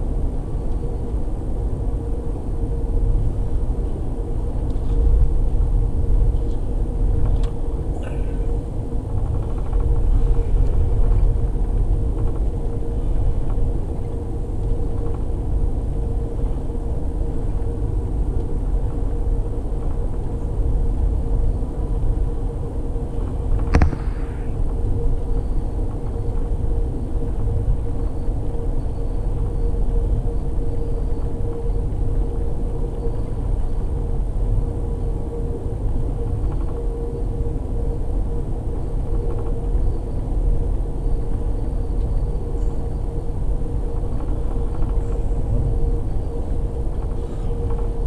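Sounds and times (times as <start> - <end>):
train rumble from inside: 0.0 - 48.0
sharp click: 23.7 - 24.4.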